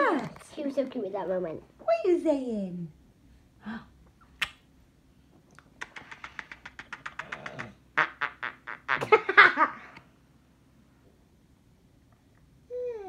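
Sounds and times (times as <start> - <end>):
kissing smacks: 4.2 - 4.7, 5.5 - 9.1.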